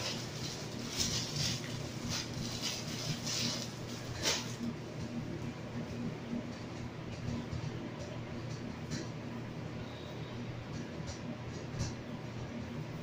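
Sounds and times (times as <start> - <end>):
plastic packaging crinkling: 0.0 - 4.7
faint steady hum: 0.0 - 13.0.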